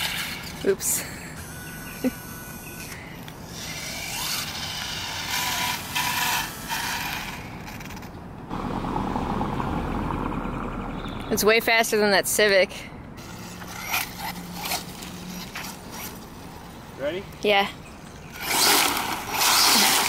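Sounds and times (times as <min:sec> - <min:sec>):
rc truck motor whining and rattling: 0:00.0 - 0:08.2, 0:13.2 - 0:16.8, 0:18.2 - 0:20.0
car driving by: 0:08.5 - 0:11.5.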